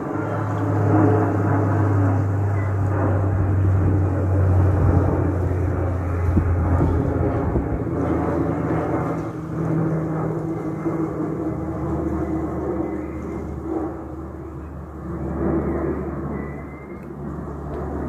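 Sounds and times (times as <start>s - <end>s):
turboprop airliner propeller drone: 0.0s - 18.0s.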